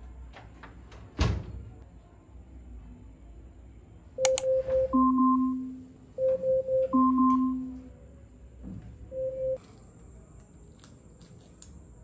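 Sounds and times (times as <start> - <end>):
electronic timer alarm beeping: 4.2 - 7.9, 9.1 - 9.6.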